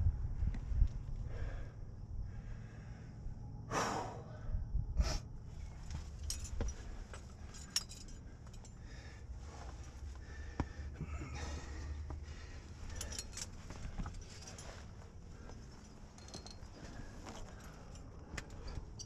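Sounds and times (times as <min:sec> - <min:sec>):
low rumble: 0:00.0 - 0:08.8
metal climbing gear clinking: 0:05.5 - 0:10.3, 0:11.0 - 0:19.0
hard breaths or scuffs: 0:08.9 - 0:18.8.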